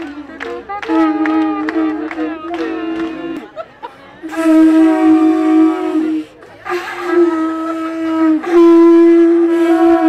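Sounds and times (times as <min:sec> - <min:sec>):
conch shells honking: 0:00.0 - 0:03.5, 0:04.2 - 0:10.0.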